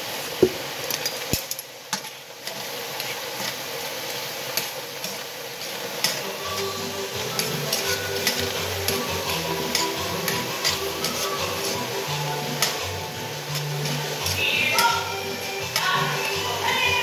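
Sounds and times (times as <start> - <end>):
food sizzling with small pops: 0.0 - 17.0
soft background music: 6.0 - 17.0.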